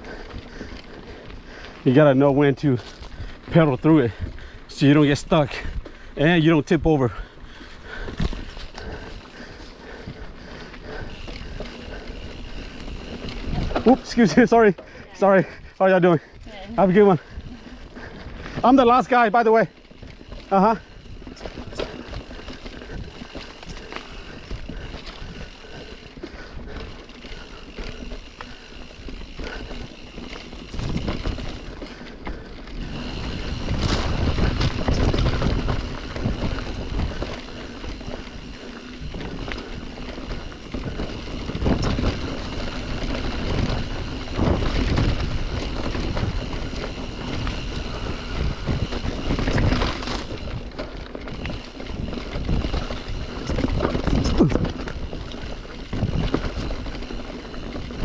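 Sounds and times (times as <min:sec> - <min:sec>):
bike rattling over roots: 0:00.0 - 0:58.0
bike tyres rolling on dirt: 0:00.0 - 0:58.0
wind buffeting microphone: 0:07.4 - 0:14.5, 0:19.9 - 0:58.0.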